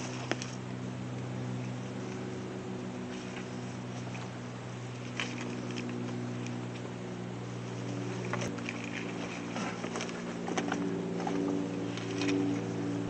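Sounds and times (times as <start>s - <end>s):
low hum: 0.0s - 13.0s
pack and vest rustling: 7.7s - 12.8s.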